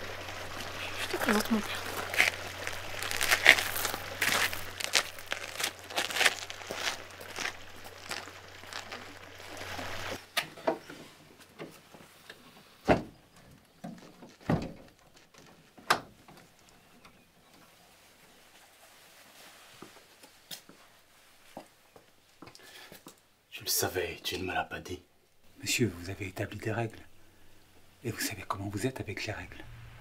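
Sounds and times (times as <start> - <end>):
rustling: 0.0 - 23.2
low hum: 29.2 - 30.0.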